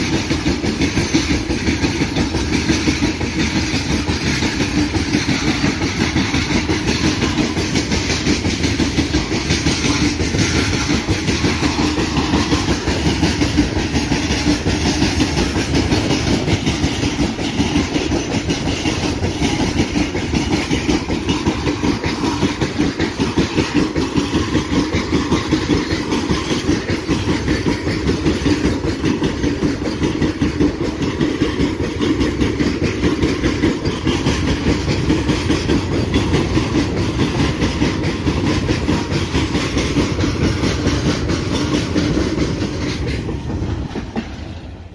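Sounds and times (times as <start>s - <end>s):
freight train rumbling past: 0.0s - 44.9s
wheels clacking over rail joints: 0.0s - 44.9s.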